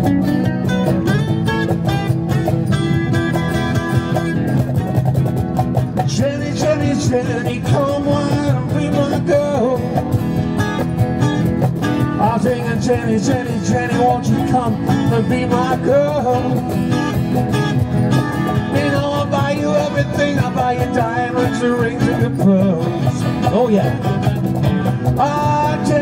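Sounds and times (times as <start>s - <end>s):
acoustic guitars strumming: 0.0s - 26.0s
cajon beat: 0.0s - 26.0s
man singing: 6.0s - 10.3s, 12.1s - 16.8s, 18.5s - 24.2s, 25.0s - 26.0s.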